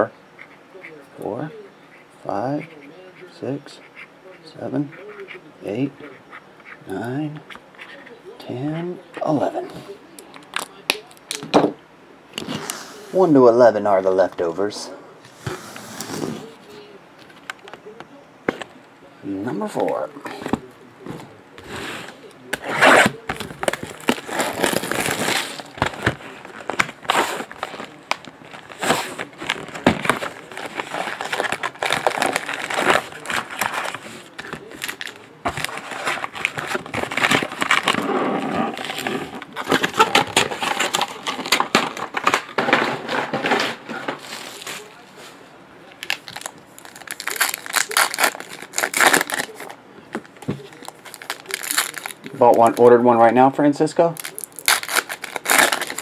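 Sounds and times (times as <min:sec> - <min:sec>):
foil packs crinkling: 0:22.5 - 0:45.0, 0:46.0 - 0:56.0.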